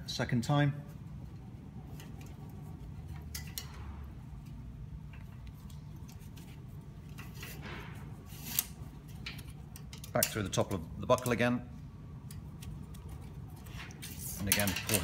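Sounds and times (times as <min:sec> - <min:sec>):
low steady hum: 0:00.0 - 0:15.0
metal strapping band scraping: 0:05.1 - 0:10.4.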